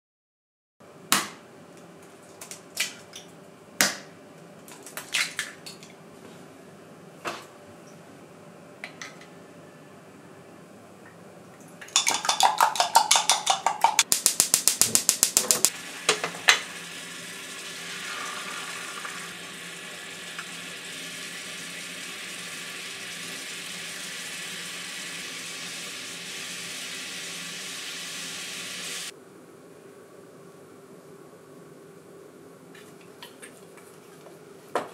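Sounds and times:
eggs beaten in glass jug: 0:11.8 - 0:15.7
egg sizzling in frying pan: 0:12.0 - 0:29.1.

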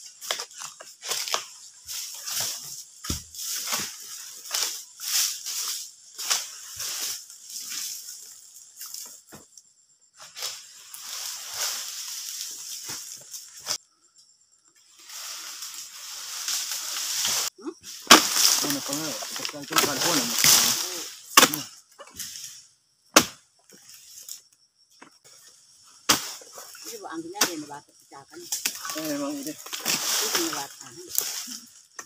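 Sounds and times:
dry leaves crunching underfoot: 0:00.0 - 0:09.3, 0:10.5 - 0:13.8, 0:15.0 - 0:21.6, 0:28.6 - 0:31.9.

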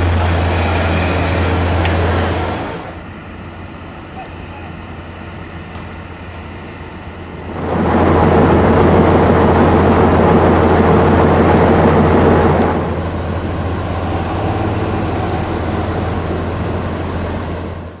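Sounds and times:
diesel train engine humming: 0:00.0 - 0:18.0
loud rushing noise: 0:07.4 - 0:18.0.

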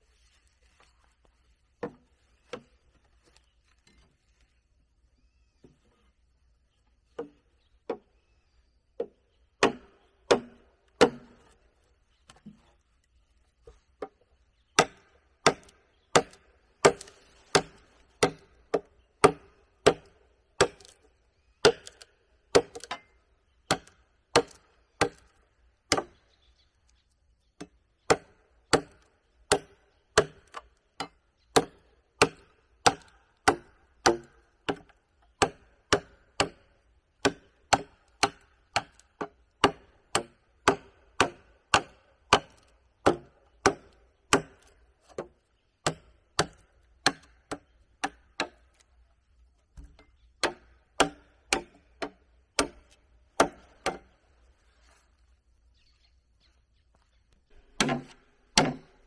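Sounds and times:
wood chopping strikes: 0:09.0 - 0:11.6, 0:14.8 - 0:21.0, 0:21.6 - 0:23.1, 0:23.7 - 0:26.2, 0:27.6 - 0:48.9, 0:49.7 - 0:54.2, 0:57.5 - 0:59.0.

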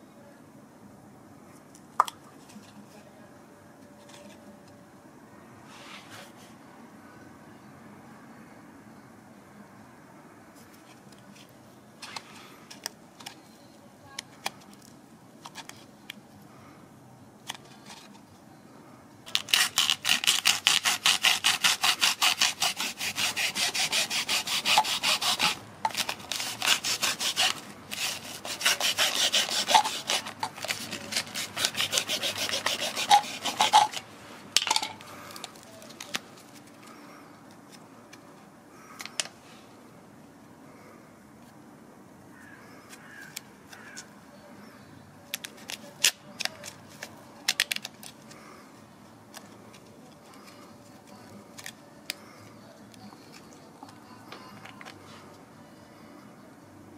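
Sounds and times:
hacksaw cutting filter: 0:19.3 - 0:34.1.

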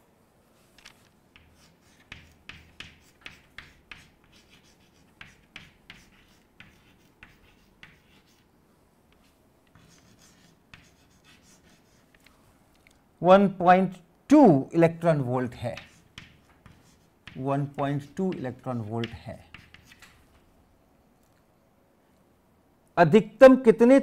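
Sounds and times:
chalk tapping and scratching: 0:00.8 - 0:08.5, 0:09.1 - 0:12.3, 0:15.6 - 0:20.4.

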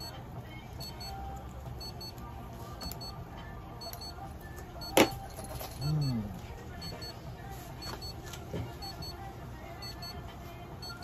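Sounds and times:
faint electronic beeps: 0:03.8 - 0:08.2, 0:08.8 - 0:10.2, 0:10.8 - 0:11.0.

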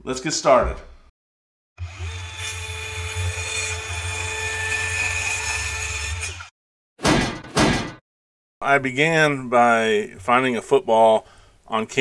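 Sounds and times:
power tool whining: 0:01.8 - 0:04.1.

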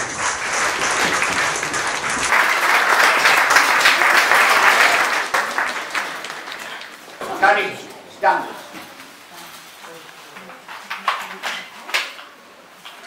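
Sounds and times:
audience clapping: 0:00.0 - 0:07.8.

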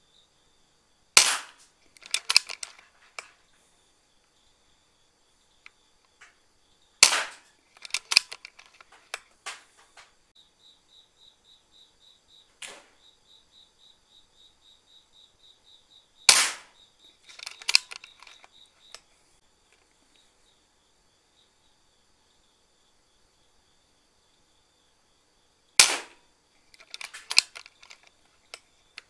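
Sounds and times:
air rifle shot crack: 0:01.2 - 0:02.6, 0:07.0 - 0:08.3, 0:16.3 - 0:16.8, 0:25.8 - 0:26.2
small clicks and knocks: 0:01.2 - 0:03.6, 0:07.0 - 0:10.2, 0:16.3 - 0:19.1, 0:25.8 - 0:29.0.

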